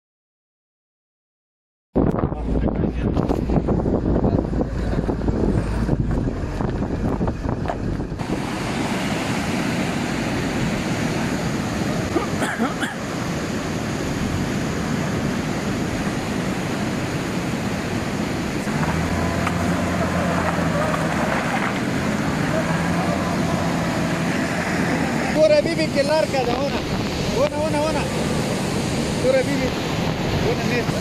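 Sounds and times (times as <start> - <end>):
vehicle rumble inside cab: 2.1 - 13.0, 15.8 - 30.6
stream water rushing: 3.4 - 31.0.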